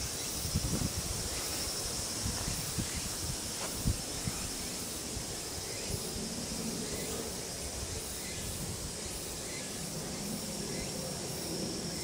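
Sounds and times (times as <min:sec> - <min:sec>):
insects chirping: 0:00.0 - 0:12.0
outdoor hiss: 0:00.0 - 0:12.0.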